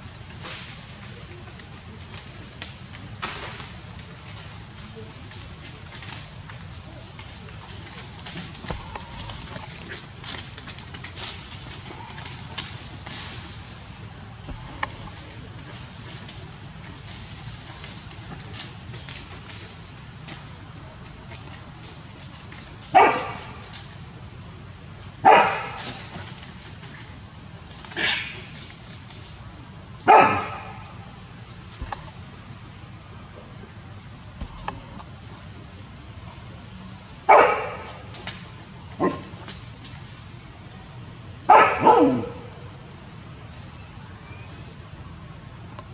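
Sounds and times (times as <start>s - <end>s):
insects droning: 0.0s - 45.9s
dog barking: 23.0s - 23.5s, 25.2s - 25.8s, 30.1s - 30.8s, 37.3s - 37.9s, 39.0s - 39.3s, 41.5s - 42.5s.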